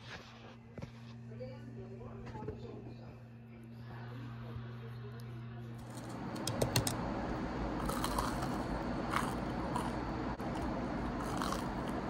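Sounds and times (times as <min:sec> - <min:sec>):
person chewing crunchy fried dough: 0:07.8 - 0:12.0.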